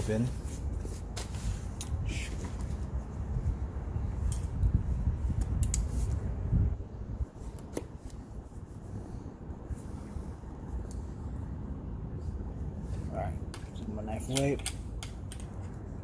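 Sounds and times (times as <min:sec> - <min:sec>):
sharp clicks and snips: 0:05.4 - 0:05.9, 0:14.3 - 0:15.8.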